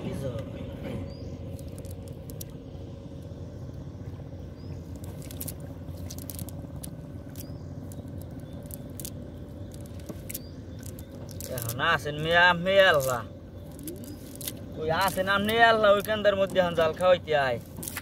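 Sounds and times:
steady low hum: 0:00.0 - 0:18.0
wet net crackling and squishing: 0:01.5 - 0:02.6, 0:04.9 - 0:18.0.

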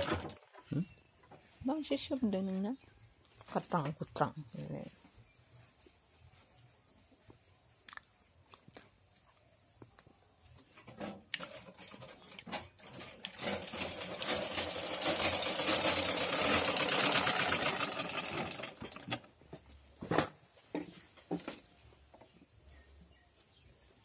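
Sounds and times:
sewing machine stitching: 0:11.4 - 0:19.3.

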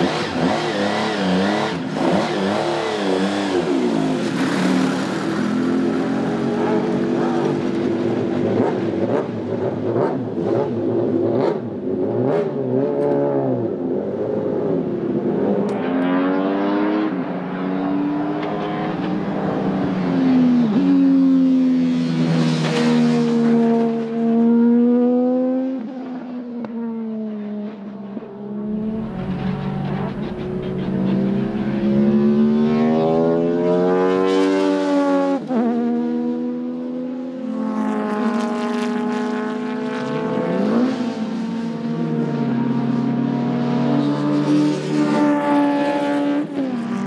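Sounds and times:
race car engine accelerating: 0:26.9 - 0:37.0.

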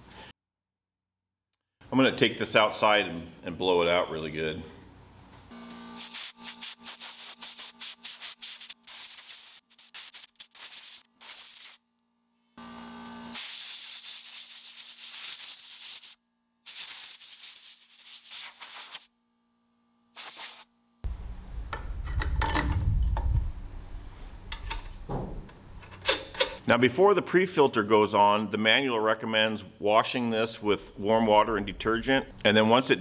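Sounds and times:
air blow gun hissing: 0:06.0 - 0:11.8, 0:13.3 - 0:19.1, 0:20.2 - 0:20.7
low rumble: 0:21.1 - 0:24.4.

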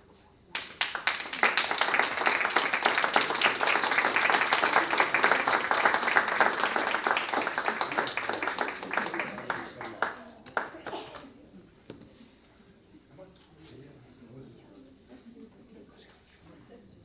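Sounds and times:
audience applauding: 0:00.6 - 0:11.2.

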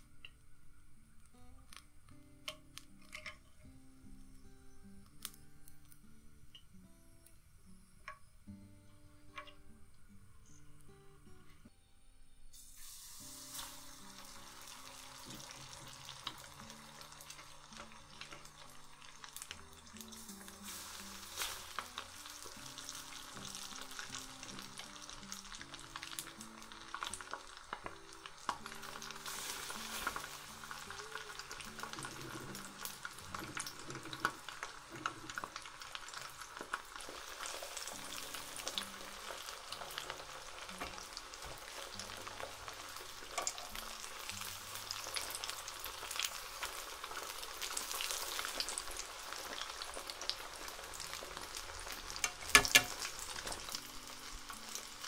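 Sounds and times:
tofu deep-frying in oil: 0:12.6 - 0:55.0.

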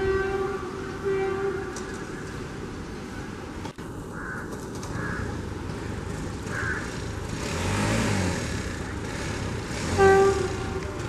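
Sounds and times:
locomotive air horn blast: 0:00.0 - 0:02.0, 0:09.3 - 0:11.0
approaching train rumble: 0:00.0 - 0:11.0.

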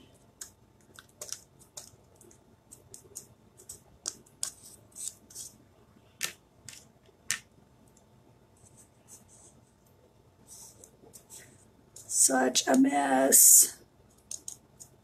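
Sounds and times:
soft rustles of stencil handling: 0:07.9 - 0:12.2
plastic craft tools clicking: 0:14.2 - 0:15.0.

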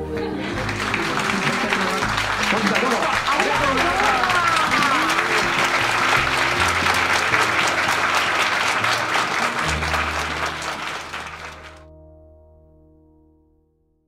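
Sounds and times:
background music with low notes: 0:00.0 - 0:14.0
audience applauding: 0:00.1 - 0:11.8.

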